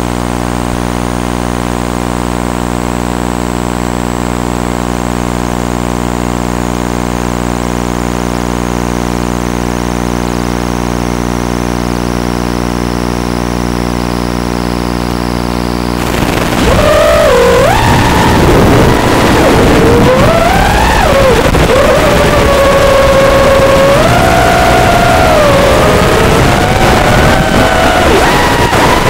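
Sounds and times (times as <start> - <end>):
quadcopter buzzing hum: 10.7 - 29.0.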